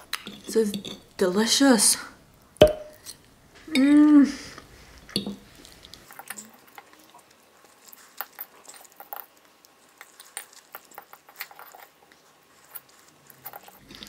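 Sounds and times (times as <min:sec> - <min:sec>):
soft chewing: 0:04.6 - 0:14.0.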